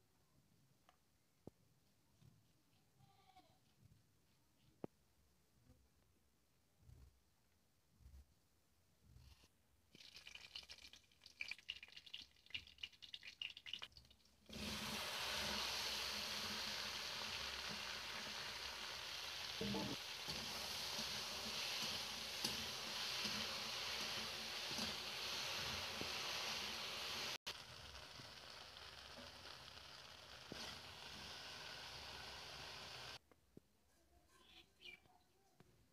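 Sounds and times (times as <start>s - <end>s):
hot oil crackling: 9.9s - 33.2s
okra sizzling in oil: 9.9s - 33.2s.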